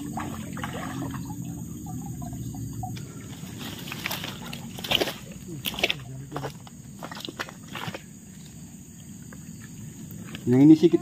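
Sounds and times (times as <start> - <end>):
water splashing and trickling: 0.0 - 8.4.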